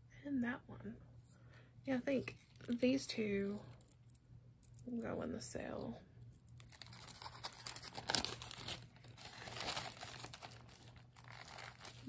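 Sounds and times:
plastic bags crinkling: 6.4s - 12.0s.

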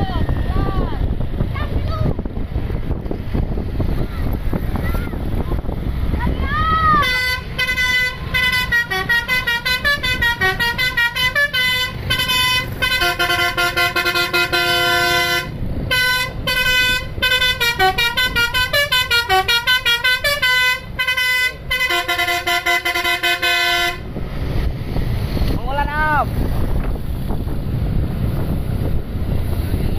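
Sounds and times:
bus horn playing a melody: 7.0s - 24.1s.

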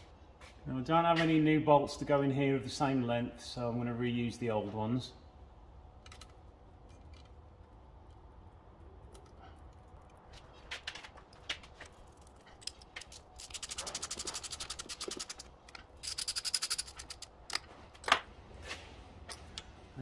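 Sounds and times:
ratchet wrench clicking: 12.6s - 17.6s.

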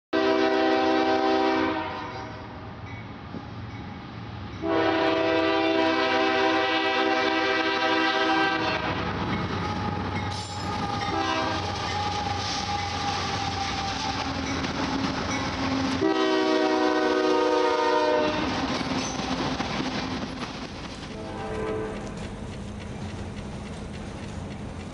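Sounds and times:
locomotive air horn blasts: 0.2s - 2.4s, 4.6s - 9.0s, 10.8s - 13.9s, 16.0s - 18.5s, 21.2s - 22.0s
freight train rumble and clatter: 0.2s - 24.9s.

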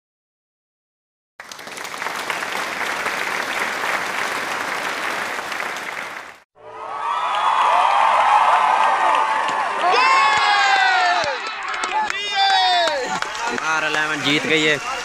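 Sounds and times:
spectators clapping: 1.4s - 6.4s, 7.1s - 15.0s
crowd shouting and cheering: 3.3s - 15.0s.

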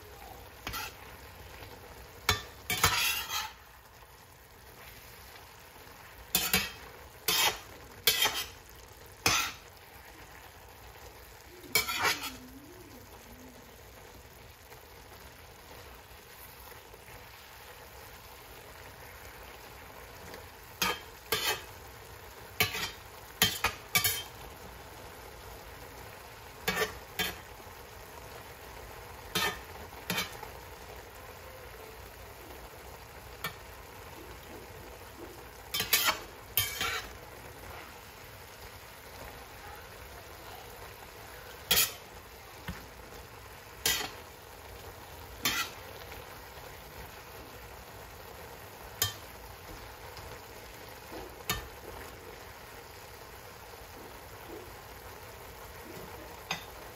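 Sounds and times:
spinach sizzling in frying pan: 0.0s - 56.9s
metal utensil scraping pan: 0.6s - 1.2s, 2.2s - 3.7s, 6.2s - 9.7s, 11.7s - 12.5s, 20.8s - 21.8s, 22.6s - 24.4s, 26.6s - 27.5s, 29.3s - 30.5s, 35.7s - 37.8s, 41.5s - 42.8s, 43.8s - 44.3s, 45.4s - 46.1s, 49.0s - 49.3s, 51.1s - 52.0s, 56.0s - 56.8s.

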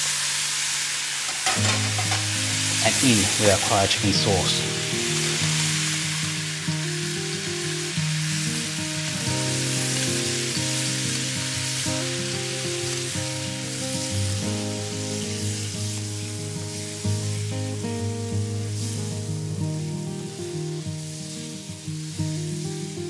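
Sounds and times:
chicken sizzling in a frying pan: 0.0s - 23.0s
soft background music: 1.7s - 7.4s.

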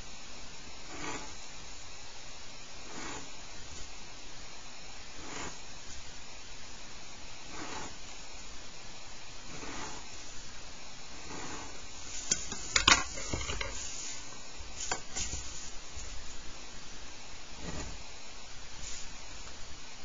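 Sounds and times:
pencil scratching on paper: 2.9s - 3.3s, 5.2s - 5.6s, 7.5s - 8.0s, 9.5s - 10.1s, 11.2s - 12.6s.

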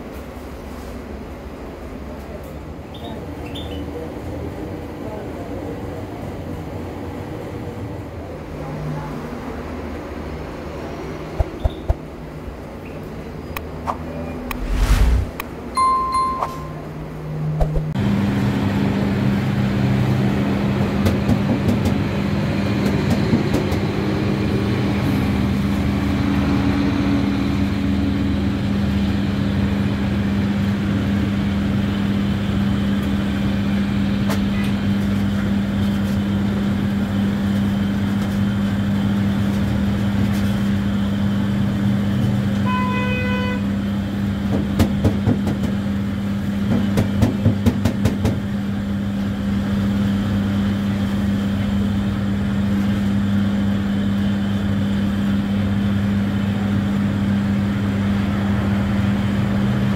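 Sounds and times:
brief pitched tone: 15.8s - 17.0s.

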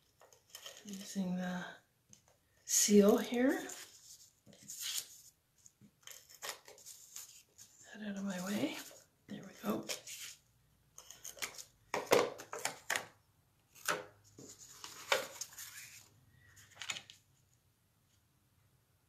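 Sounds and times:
paper sliding and rustling: 3.6s - 5.3s, 6.1s - 7.8s, 9.8s - 10.4s, 13.7s - 17.2s.

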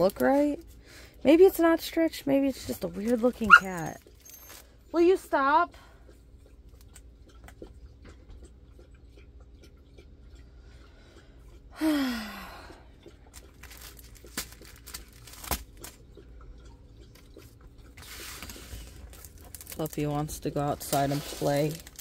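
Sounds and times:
puppy whining: 3.4s - 4.7s
plastic packaging crinkling: 13.3s - 16.0s, 18.0s - 22.0s.

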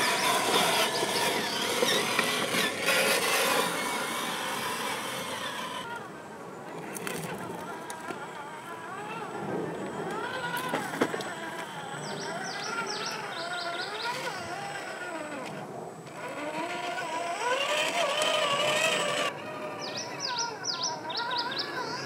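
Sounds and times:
bird singing: 0.0s - 2.7s, 11.2s - 14.8s, 18.7s - 22.0s
electric motor whining: 0.0s - 22.0s.

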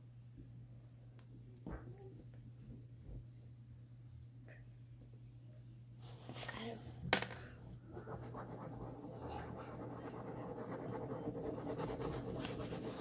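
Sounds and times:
scratching and rubbing on microphone: 7.9s - 13.0s.

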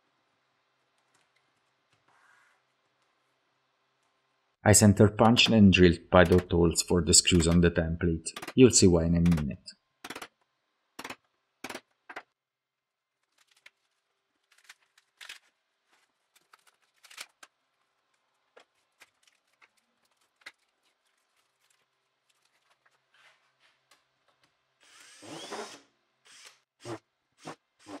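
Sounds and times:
tools clicking and rustling: 6.2s - 6.5s, 8.3s - 8.6s, 9.3s - 10.4s.

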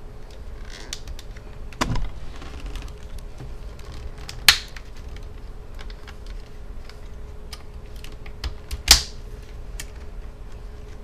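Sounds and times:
plastic clips snapping loose: 7.5s - 9.2s.

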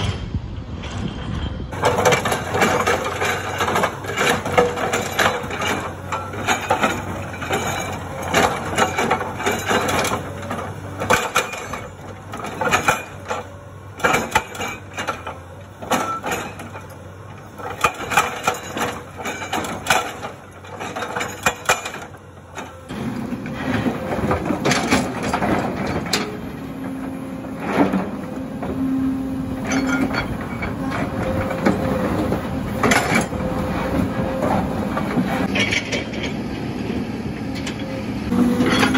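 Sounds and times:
excavator diesel engine under load: 0.0s - 38.9s
hydraulic breaker hammering rock: 1.7s - 28.9s.

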